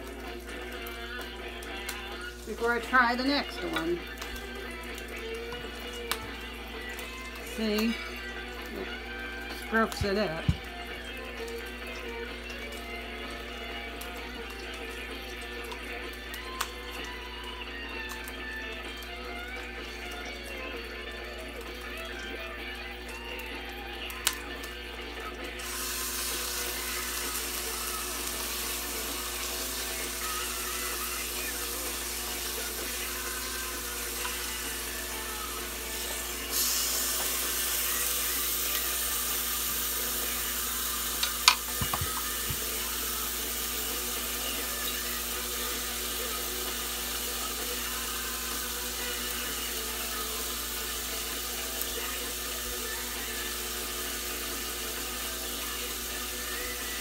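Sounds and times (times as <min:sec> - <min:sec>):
tap running into sink: 0:09.8 - 0:10.9, 0:41.2 - 0:42.8.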